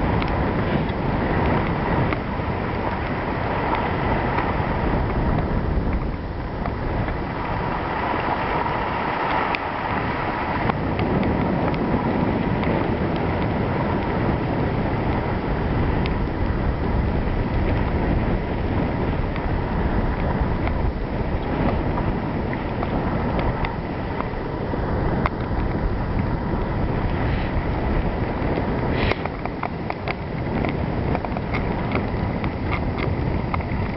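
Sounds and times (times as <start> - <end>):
skis gliding over snow: 0.0 - 33.9
wind rushing over microphone: 0.0 - 33.9
faint clicks: 28.4 - 33.9.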